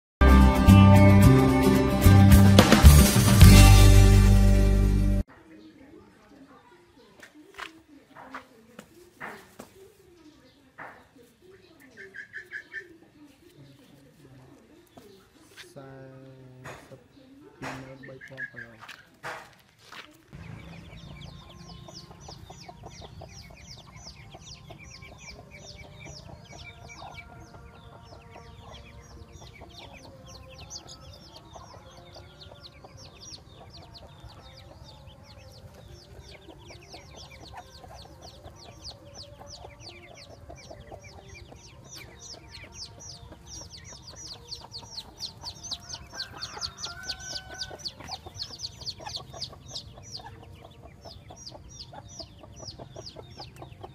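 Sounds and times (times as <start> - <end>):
ducklings peeping: 5.5 - 53.9.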